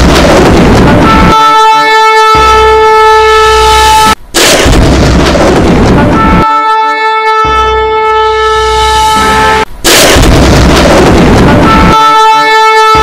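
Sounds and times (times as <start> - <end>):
loud crash of noise: 0.0 - 1.4, 4.0 - 6.4, 9.2 - 12.1
long horn blast: 1.0 - 4.2, 6.0 - 9.7, 11.5 - 13.0.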